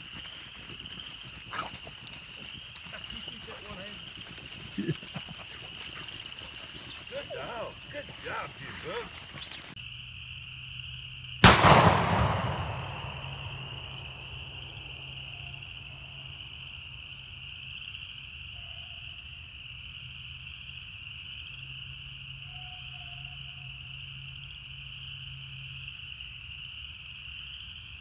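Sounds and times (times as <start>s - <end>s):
shotgun shot echoing: 11.4s - 14.3s.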